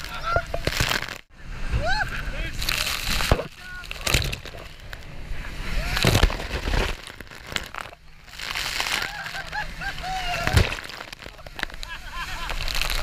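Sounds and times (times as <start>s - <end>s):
water crashing over boat bow: 0.0s - 13.0s
passengers shrieking and laughing: 9.0s - 10.6s.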